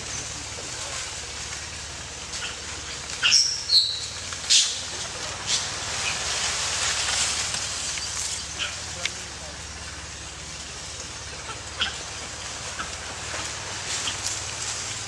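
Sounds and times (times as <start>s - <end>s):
outdoor background hiss: 0.0s - 15.0s
high-pitched chirps and squeaks: 3.2s - 4.7s.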